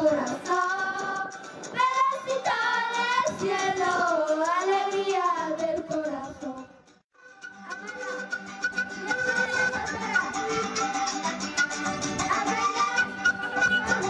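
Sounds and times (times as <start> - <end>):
girls singing: 0.0 - 6.7, 9.0 - 11.0, 12.1 - 14.0
instruments playing: 7.2 - 14.0.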